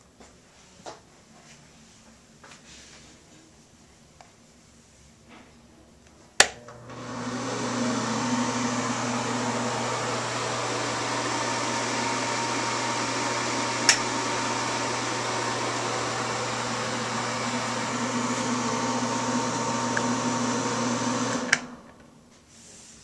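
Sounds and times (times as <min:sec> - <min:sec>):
wall switch clicking: 0:06.4 - 0:06.8, 0:13.8 - 0:14.1
exhaust fan whooshing and humming: 0:06.6 - 0:22.4.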